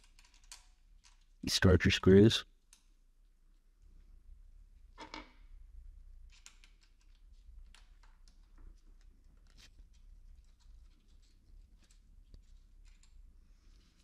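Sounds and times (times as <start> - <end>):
small clicks and rustles: 0.0 - 1.4, 6.1 - 14.0.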